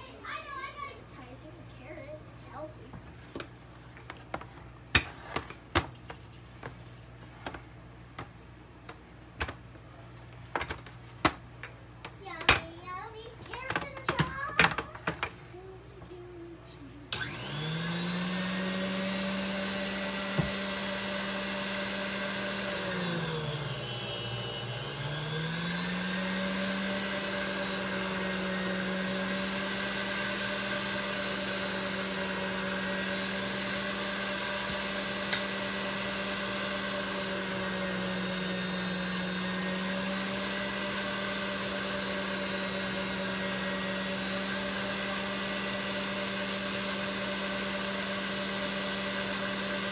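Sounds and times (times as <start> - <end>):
stand mixer motor hum: 17.2 - 49.9.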